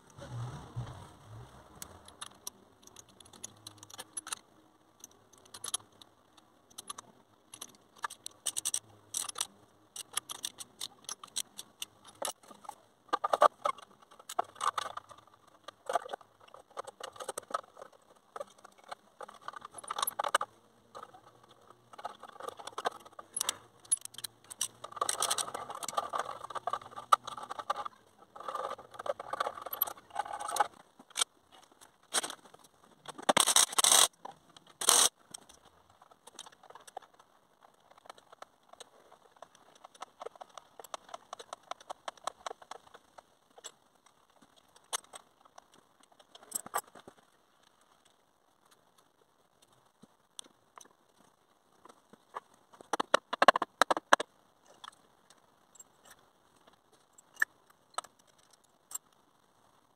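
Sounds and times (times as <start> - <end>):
metal clinks and rattles: 1.9 - 6.0, 6.7 - 34.1.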